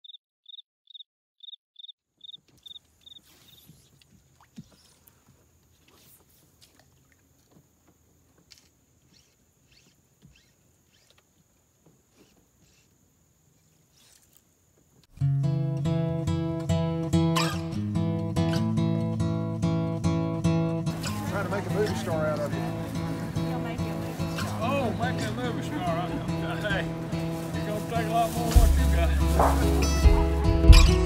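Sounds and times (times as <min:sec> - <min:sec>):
cricket chirps: 0:00.0 - 0:15.1
high insect drone: 0:08.6 - 0:14.8.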